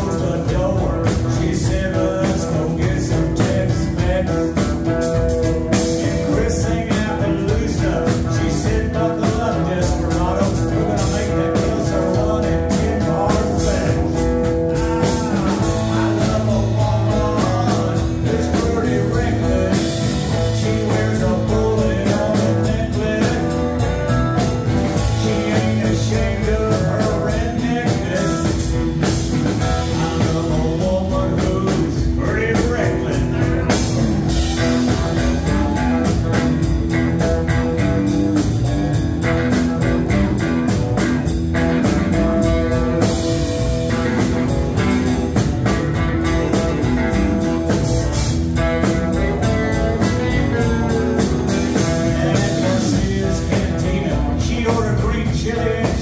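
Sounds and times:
person singing: 0:00.0 - 0:05.0, 0:05.6 - 0:36.7, 0:48.8 - 0:56.0
blues-rock band playing: 0:00.0 - 0:56.0.

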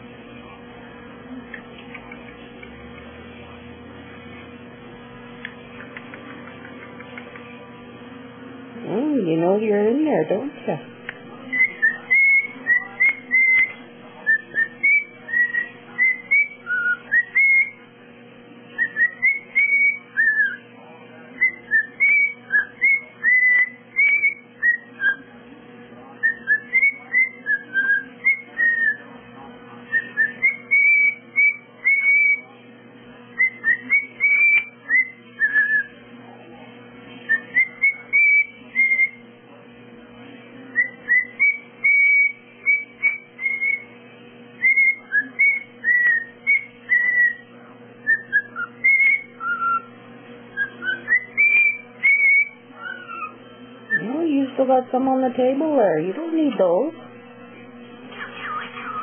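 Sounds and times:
bird chirping high: 0:11.6 - 0:17.8, 0:18.8 - 0:20.6, 0:21.5 - 0:25.3, 0:30.0 - 0:32.4, 0:33.4 - 0:35.9, 0:40.8 - 0:43.9, 0:44.6 - 0:47.4, 0:48.1 - 0:49.9, 0:50.5 - 0:54.1, 0:58.2 - 0:59.0.

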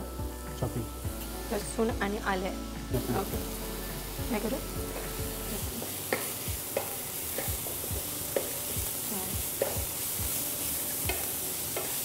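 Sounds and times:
vegetables sizzling in oil: 0:00.0 - 0:12.0
spatula scraping and tapping pan: 0:05.8 - 0:08.6, 0:09.6 - 0:09.9.

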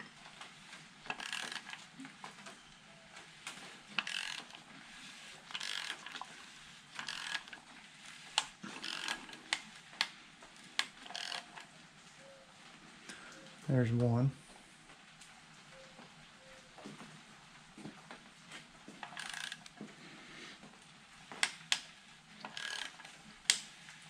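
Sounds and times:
ratchet wrench ratcheting: 0:01.1 - 0:01.8, 0:04.0 - 0:04.6, 0:05.5 - 0:06.3, 0:07.0 - 0:07.6, 0:08.4 - 0:09.4, 0:10.9 - 0:11.6, 0:19.1 - 0:19.7, 0:22.4 - 0:23.6
timing chain turning: 0:01.1 - 0:01.8, 0:04.0 - 0:04.6, 0:05.5 - 0:06.3, 0:07.0 - 0:07.6, 0:08.6 - 0:09.4, 0:11.0 - 0:11.6, 0:19.1 - 0:19.7, 0:22.4 - 0:23.1.

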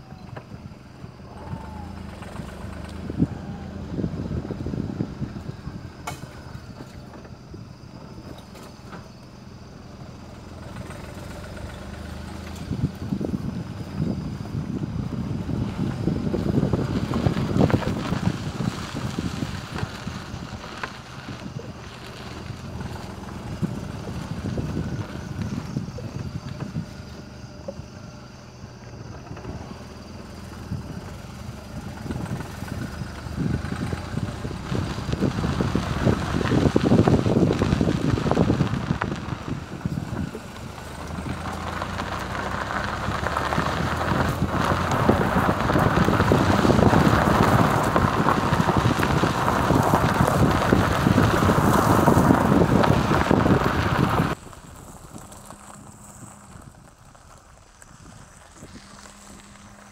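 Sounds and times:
car engine on dirt track: 0:00.0 - 0:59.9
tyres rumbling on gravel: 0:00.0 - 0:59.9
wind buffeting microphone: 0:00.0 - 0:59.9.

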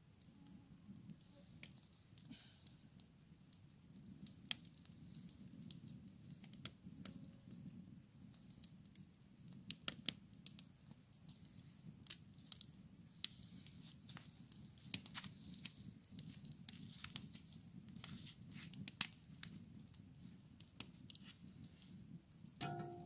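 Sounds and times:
campfire crackling and popping: 0:00.0 - 0:23.0.

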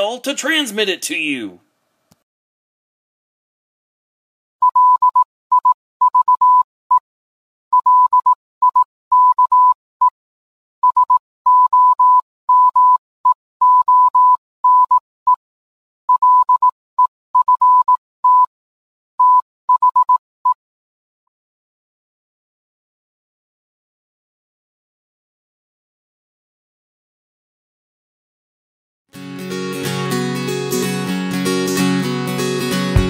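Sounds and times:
morse code beeps: 0:04.6 - 0:07.0, 0:07.7 - 0:09.8, 0:10.8 - 0:15.4, 0:16.1 - 0:16.7, 0:17.4 - 0:18.5, 0:19.2 - 0:20.2.

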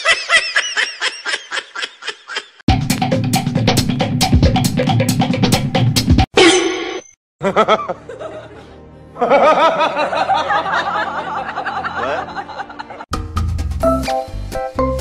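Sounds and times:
people giggling: 0:00.0 - 0:02.6, 0:07.4 - 0:13.1.

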